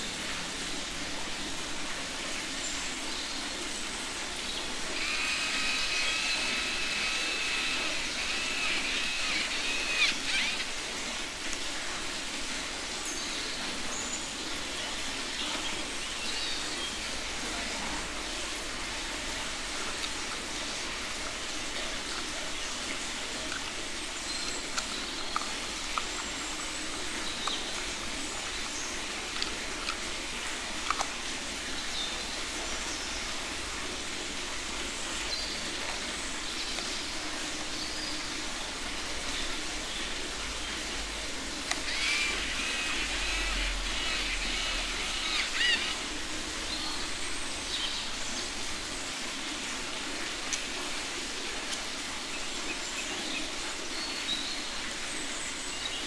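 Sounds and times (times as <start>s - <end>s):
outdoor background hiss: 0.0s - 56.0s
faint bird chirps: 5.0s - 10.8s, 41.8s - 46.0s.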